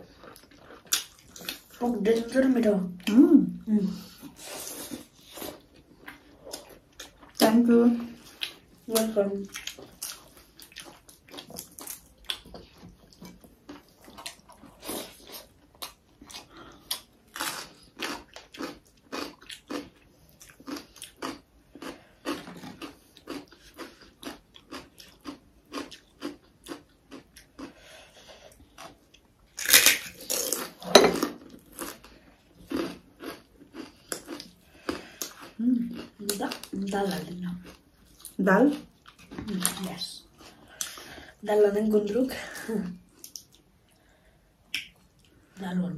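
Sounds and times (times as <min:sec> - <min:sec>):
chewing and smacking: 0:00.0 - 0:01.8, 0:08.2 - 0:27.8, 0:28.5 - 0:41.0, 0:44.7 - 0:45.4.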